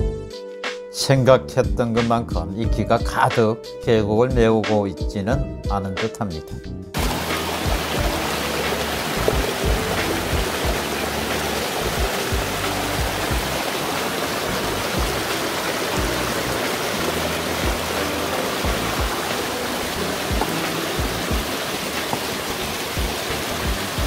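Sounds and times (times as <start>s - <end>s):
background music: 0.0s - 24.0s
stream water rushing over rocks: 7.0s - 24.0s.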